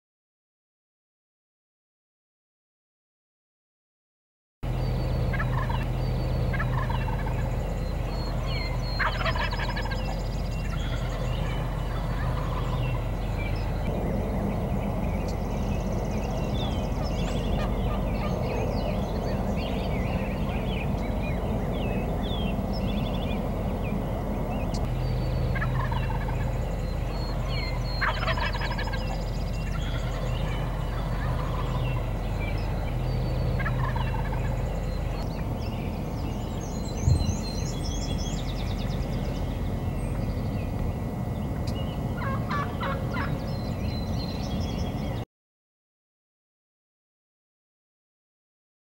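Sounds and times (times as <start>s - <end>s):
songbird chirps: 4.6s - 45.2s
turkeys gobbling: 5.2s - 43.5s.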